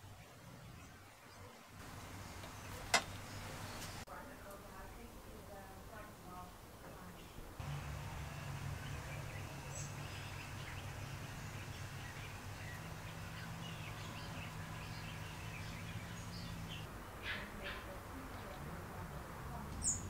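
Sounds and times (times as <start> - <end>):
small birds chirping: 0.0 - 5.1, 6.9 - 20.0
steady low hum: 7.4 - 19.8.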